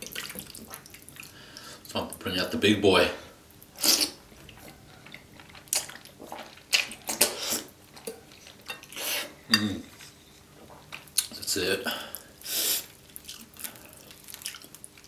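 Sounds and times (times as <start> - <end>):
slurping noodles: 5.8 - 7.7.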